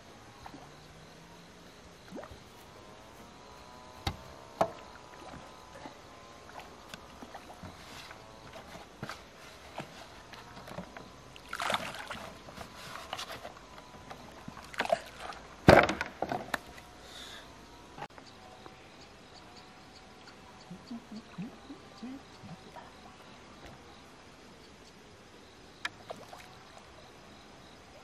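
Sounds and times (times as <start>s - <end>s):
water sloshing in basin: 4.7s - 13.6s, 14.3s - 15.5s.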